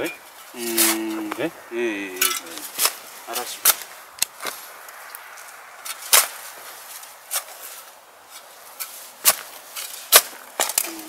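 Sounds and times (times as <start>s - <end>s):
shovel chopping into soil: 5.8s - 6.5s, 7.3s - 11.0s.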